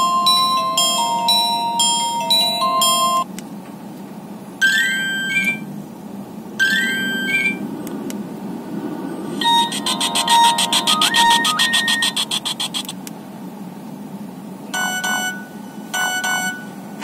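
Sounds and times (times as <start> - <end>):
phone ringtone beeping melody: 0.0 - 3.2, 4.6 - 5.6, 6.6 - 7.6, 9.4 - 12.9, 14.8 - 16.8
rising alert tone: 9.3 - 12.9.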